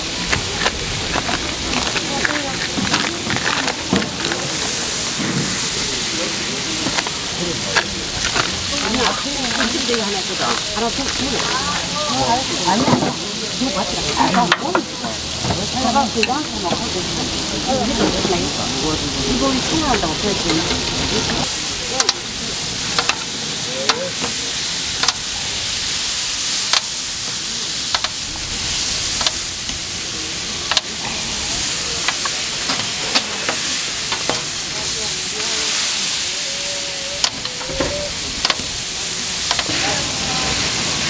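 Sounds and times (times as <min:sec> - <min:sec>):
pancakes sizzling: 0:00.0 - 0:41.0.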